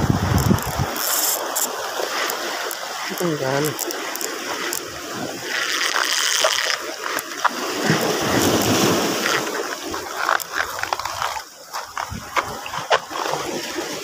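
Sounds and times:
wind buffeting microphone: 0.0s - 1.0s, 11.8s - 13.8s
waves splashing over rocks: 0.0s - 14.0s.

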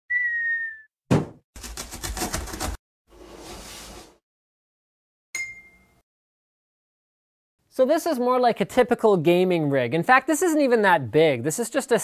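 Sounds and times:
falling whistle: 0.1s - 0.9s
thump: 1.1s - 1.4s
bright ding: 5.4s - 6.0s.

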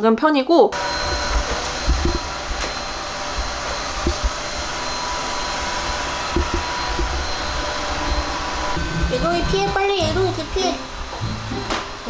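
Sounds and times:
robot vacuum suction hum: 0.8s - 12.0s.

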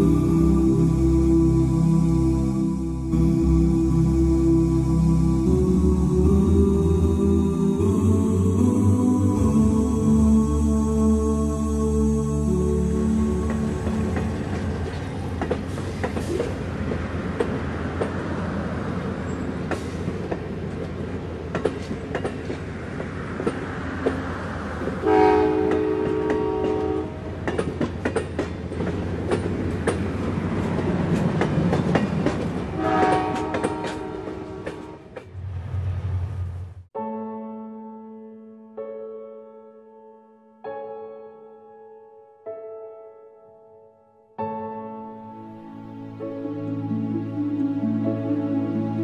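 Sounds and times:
train wheels clicking over rails: 13.4s - 36.3s
train horn blasts: 25.0s - 27.3s, 32.7s - 35.2s.

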